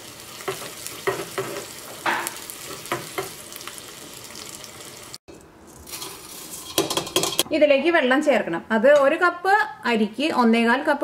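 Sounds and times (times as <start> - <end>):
shallots sizzling in hot fat: 0.0 - 7.4
metal spoon scraping a pan: 0.4 - 3.4, 5.7 - 7.5.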